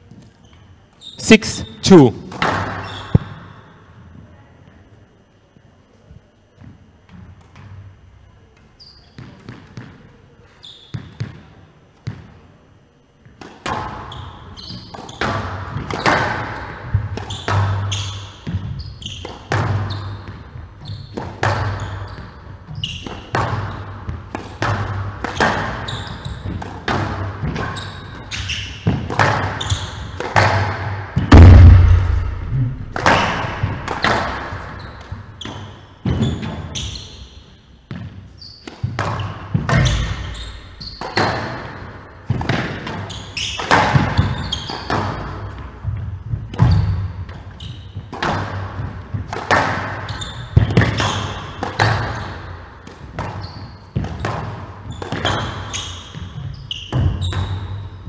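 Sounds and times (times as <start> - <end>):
heavy thud: 31.2 - 34.0.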